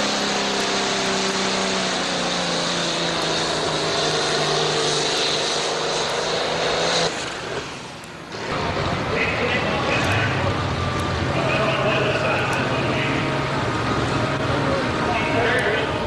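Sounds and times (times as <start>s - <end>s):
tractor engine running flat out: 0.0s - 16.0s.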